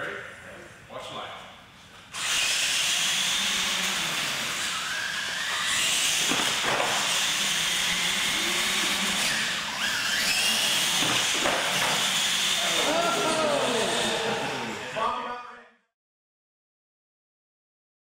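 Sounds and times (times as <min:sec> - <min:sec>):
toy truck electric motors hissing: 0:02.1 - 0:15.0
rising motor whines: 0:02.2 - 0:15.0.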